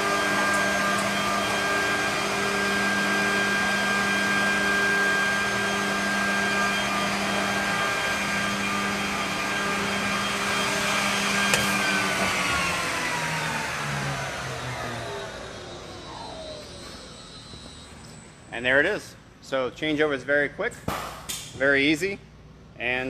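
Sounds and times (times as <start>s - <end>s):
edge bander motor hum: 0.0s - 18.4s.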